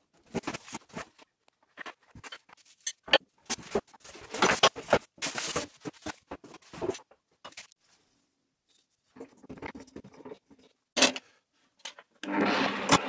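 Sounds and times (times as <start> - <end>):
cardboard and plastic rustling: 0.1 - 2.8, 3.4 - 7.9.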